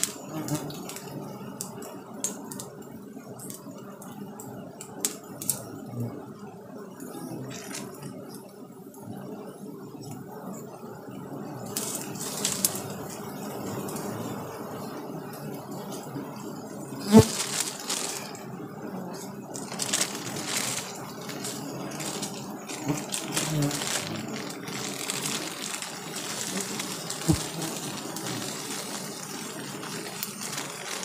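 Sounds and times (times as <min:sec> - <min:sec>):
bees buzzing: 0:11.3 - 0:31.0
rustling: 0:11.7 - 0:13.1, 0:17.0 - 0:31.0.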